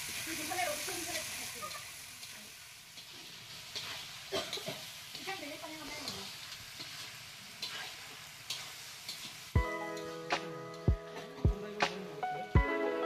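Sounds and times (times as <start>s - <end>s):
meat sizzling in oil: 0.0s - 12.4s
spatula scraping metal pan: 3.0s - 9.3s.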